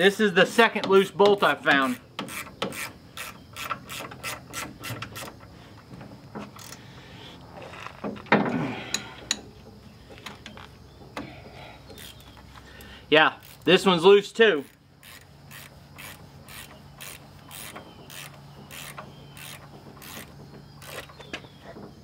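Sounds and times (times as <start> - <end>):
ratchet wrench clicking: 1.8 - 5.4, 13.4 - 13.9, 14.5 - 21.2.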